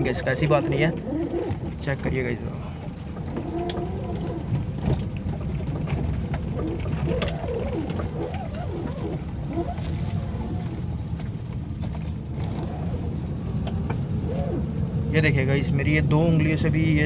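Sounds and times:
car engine and road noise: 0.0s - 17.0s
bird cooing: 0.9s - 1.6s, 6.6s - 9.8s, 14.2s - 14.6s.

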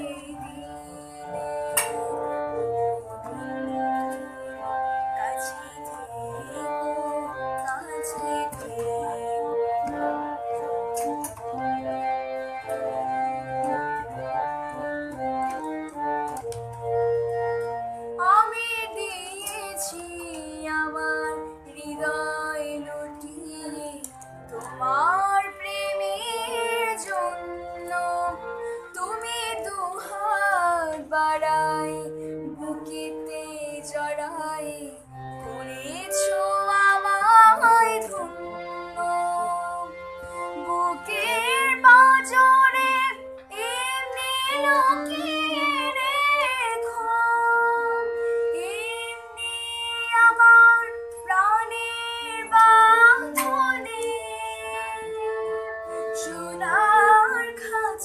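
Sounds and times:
girl singing: 0.0s - 1.6s, 5.2s - 9.6s, 18.2s - 35.0s, 35.6s - 39.9s, 40.6s - 55.2s, 56.1s - 58.0s
harmonium notes: 0.0s - 58.0s.

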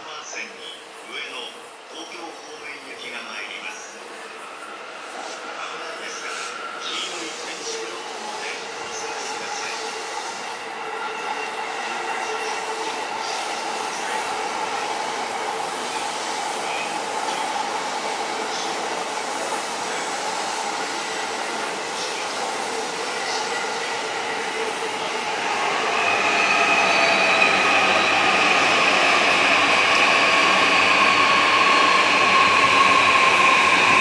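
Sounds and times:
wheel squeal: 12.2s - 23.8s.

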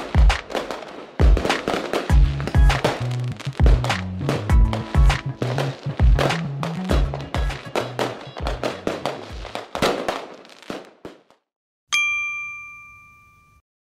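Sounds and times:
drum-backed music with bass: 0.0s - 0.5s, 1.2s - 9.5s
bright chime ringing: 11.9s - 13.6s.

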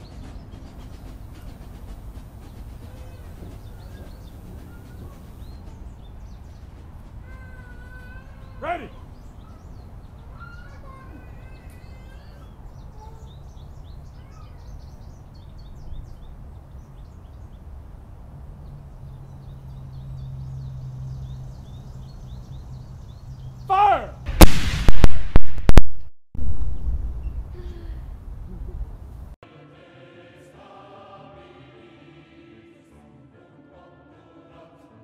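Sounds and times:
faint birdsong: 0.0s - 24.2s, 26.6s - 29.4s
person shouting: 8.6s - 9.0s, 23.7s - 24.2s
cannon blast with rumble: 24.3s - 27.3s.

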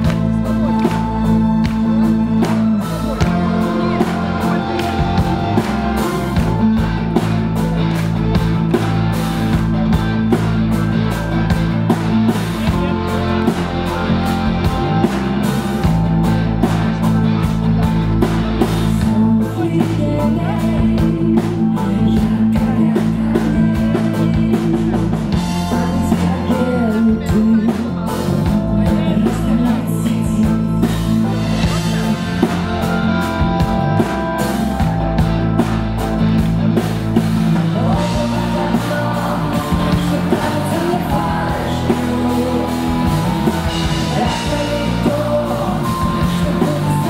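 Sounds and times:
live rock band: 0.0s - 47.0s
woman singing: 19.0s - 31.2s, 37.6s - 47.0s.

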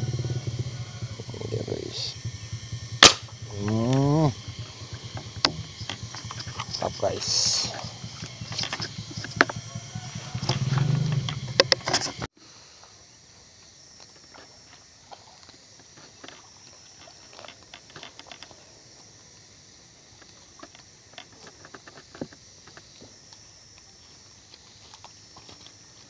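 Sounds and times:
faint outdoor background: 0.0s - 26.0s
small clicks and ticks: 14.0s - 19.1s.

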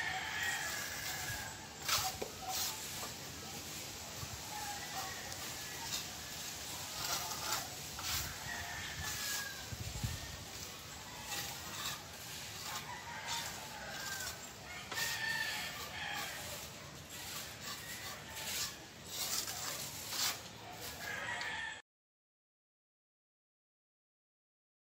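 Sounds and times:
rooster crowing: 0.0s - 1.6s, 4.4s - 6.4s, 7.0s - 18.8s, 20.9s - 21.8s.

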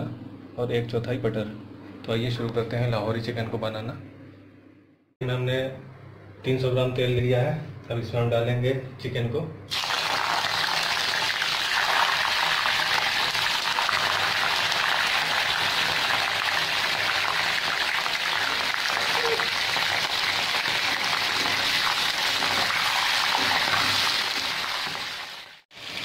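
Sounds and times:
chicken sizzling in hot oil: 9.7s - 26.0s.

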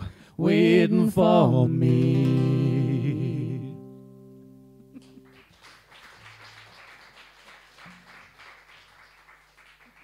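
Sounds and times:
small audience clapping: 5.0s - 10.0s.

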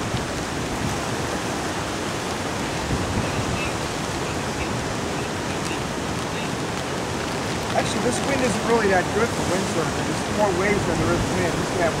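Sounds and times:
strong wind rushing: 0.0s - 6.3s
heavy surf breaking: 0.0s - 12.0s.

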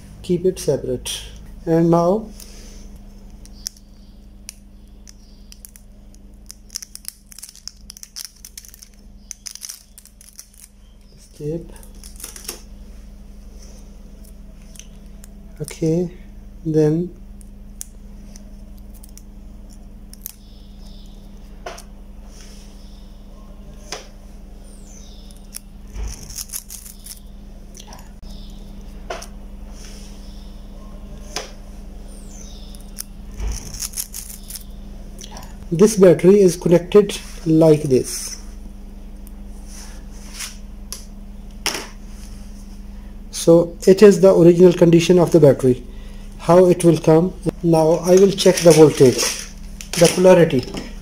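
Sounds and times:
faint steady hum: 0.0s - 51.0s
insulation paper crinkling: 5.1s - 12.6s, 48.0s - 50.6s.

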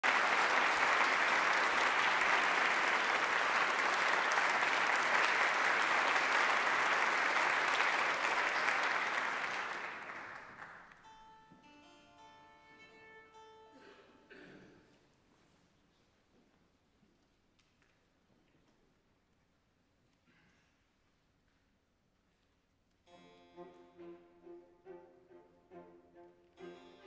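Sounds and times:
audience applauding: 0.0s - 11.0s
orchestra strings playing softly: 23.1s - 27.0s.

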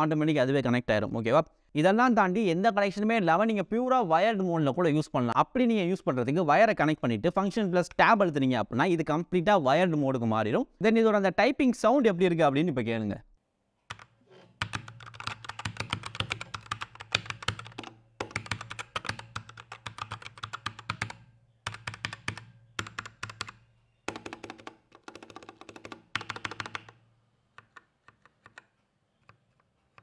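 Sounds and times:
mechanical keyboard typing: 13.9s - 27.0s.

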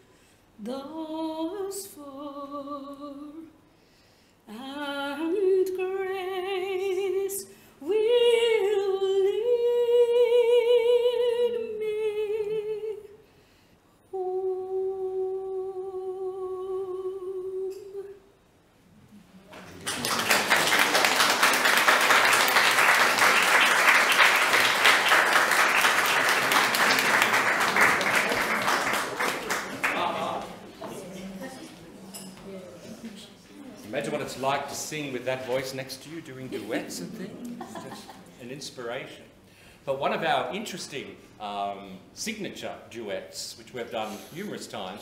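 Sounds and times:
woman singing with vibrato: 0.6s - 3.6s, 4.5s - 13.2s, 14.2s - 18.2s
audience applause: 19.6s - 30.6s.

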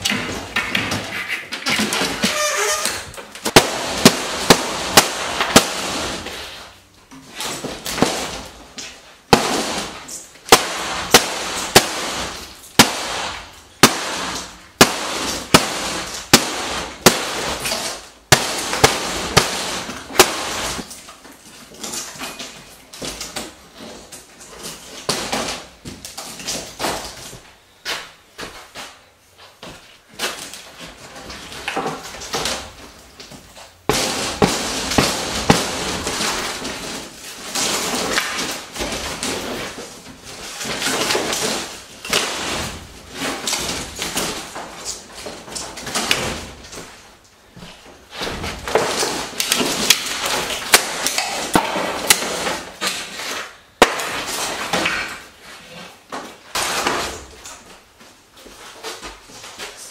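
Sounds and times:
wooden wall knocks and cracks: 29.6s - 47.0s.

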